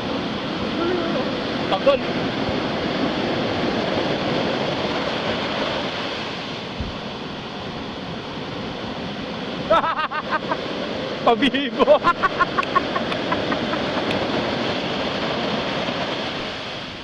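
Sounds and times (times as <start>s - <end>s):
ocean surf breaking: 0.0s - 17.0s.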